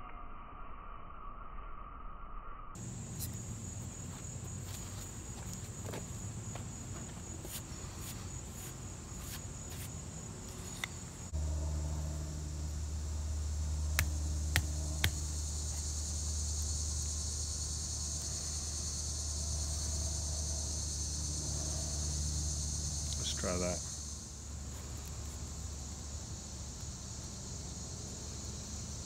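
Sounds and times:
low steady hum: 2.8s - 26.4s
insects chirring: 2.8s - 29.0s
knife cutting wood clicks: 10.7s - 11.0s.

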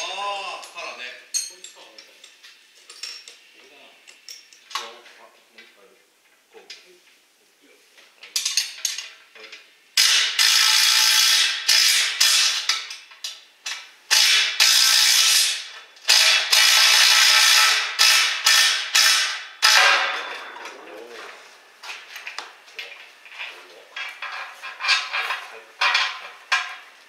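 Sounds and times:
air wrench hissing rattle: 10.0s - 13.0s, 14.1s - 20.0s.

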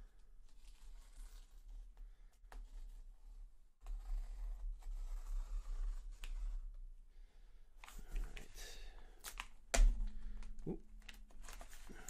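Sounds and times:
knife scraping cardboard: 3.3s - 6.7s.

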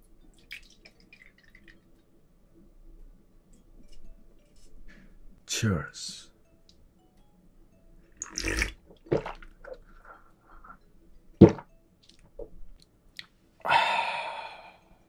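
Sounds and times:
sipping and gulping: 8.2s - 10.8s
breathy exhale: 13.6s - 15.0s.

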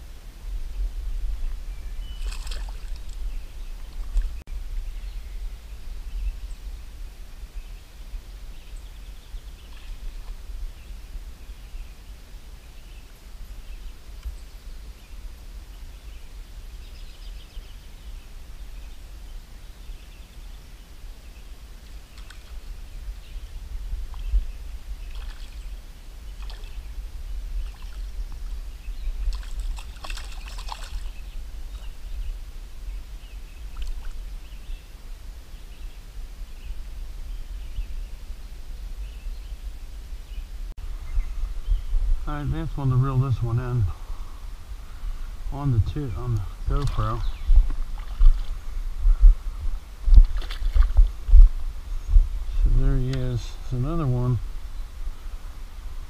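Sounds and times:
low wind rumble on microphone: 0.0s - 56.0s
slow river water washing: 1.3s - 36.9s, 42.1s - 49.1s, 49.7s - 56.0s
water splashing: 2.1s - 4.4s, 21.8s - 22.8s, 25.0s - 26.9s, 27.6s - 32.0s, 33.7s - 34.3s, 46.2s - 48.7s, 50.1s - 51.2s.

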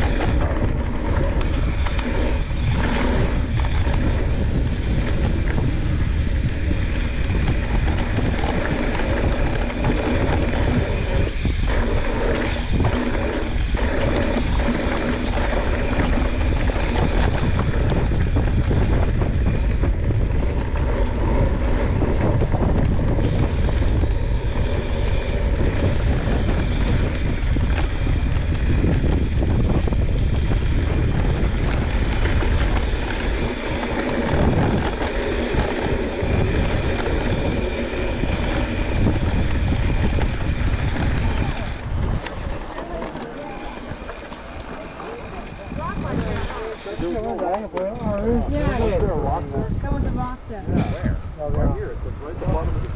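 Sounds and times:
bike tyres rolling on dirt: 0.0s - 52.9s
wind buffeting microphone: 0.0s - 52.9s.

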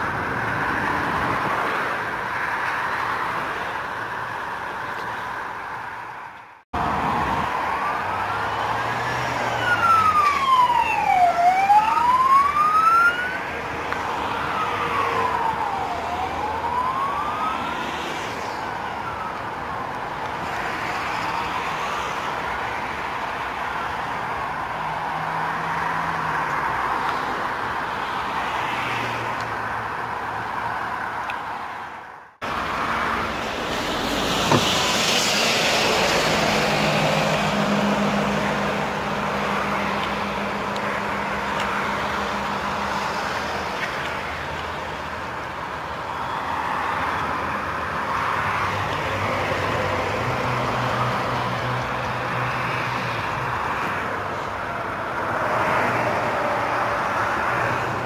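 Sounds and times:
road traffic hiss: 0.0s - 58.0s
emergency vehicle siren wailing: 6.9s - 26.3s, 32.4s - 53.7s.

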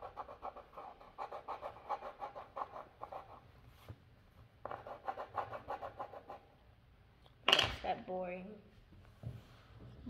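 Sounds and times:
pencil scribbling on paper: 0.0s - 3.4s, 4.6s - 6.4s.

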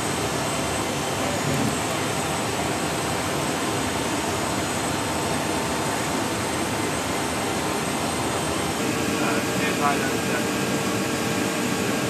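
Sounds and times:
jet engine roar: 0.0s - 12.0s
faint high whine: 8.6s - 12.0s.

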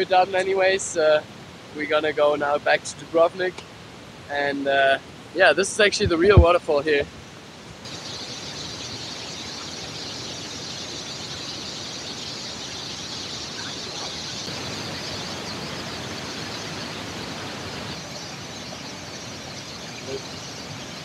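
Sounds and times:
waterfall rushing: 7.9s - 21.0s.

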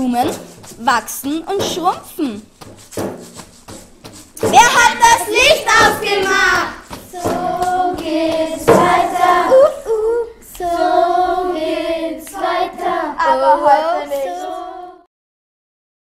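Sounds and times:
children singing together: 4.5s - 15.1s.

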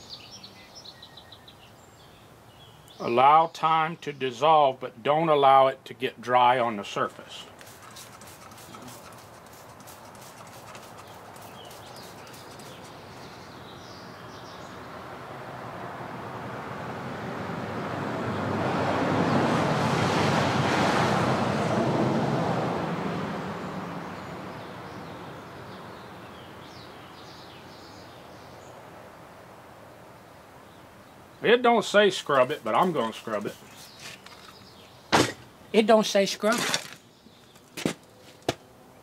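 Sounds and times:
vehicle passing by: 14.8s - 26.0s.

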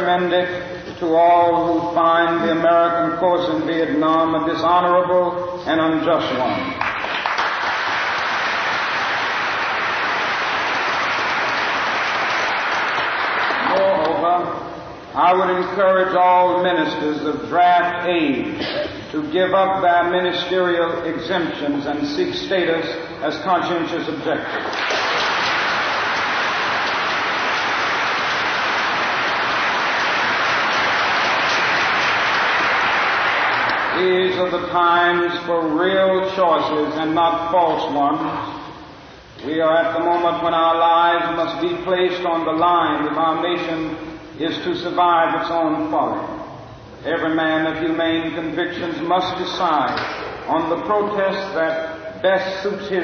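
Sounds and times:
audience applauding: 6.8s - 13.8s, 24.6s - 34.0s.

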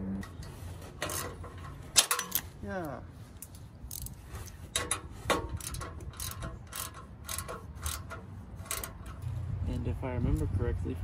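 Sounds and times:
metal bolts clicking: 0.2s - 2.5s, 3.4s - 9.3s.

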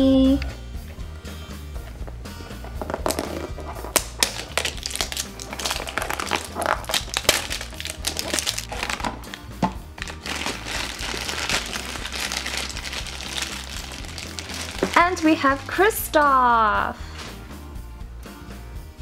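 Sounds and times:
background music: 0.0s - 19.0s
foil bag crinkling: 3.0s - 9.4s, 10.0s - 16.1s.

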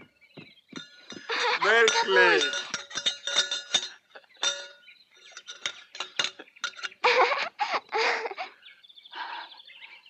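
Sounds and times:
metallic clinking and jingling: 0.7s - 7.4s.

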